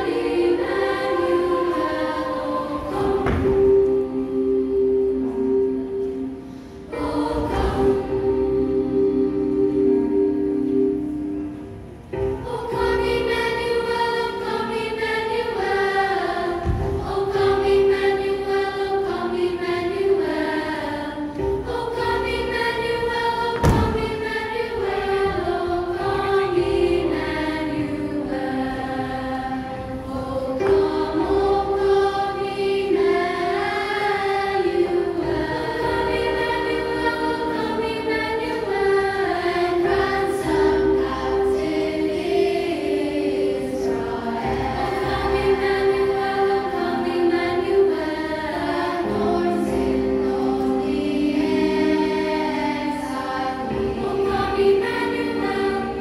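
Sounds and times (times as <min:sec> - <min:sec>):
choir singing with music: 0:00.0 - 0:56.0
knocks: 0:23.6 - 0:24.2.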